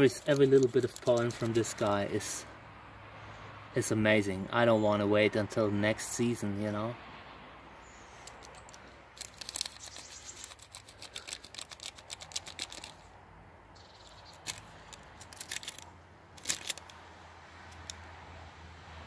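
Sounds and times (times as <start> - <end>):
paper crinkling: 0.0 - 2.0, 9.2 - 13.0, 14.0 - 16.9.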